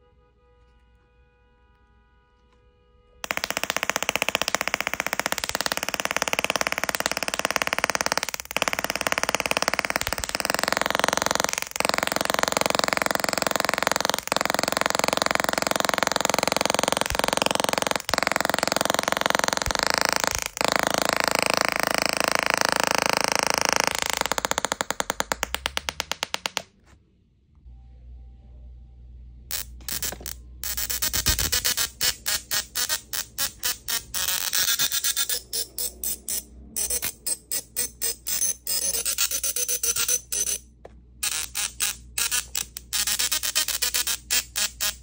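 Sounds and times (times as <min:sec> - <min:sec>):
tesla coil crackling buzz: 0:29.5 - 0:37.4.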